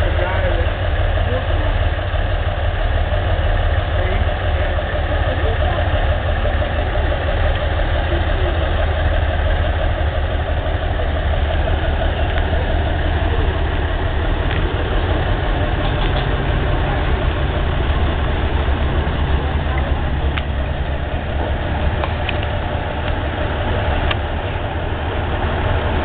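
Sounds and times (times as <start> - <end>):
locomotive engine idling: 0.0 - 26.0.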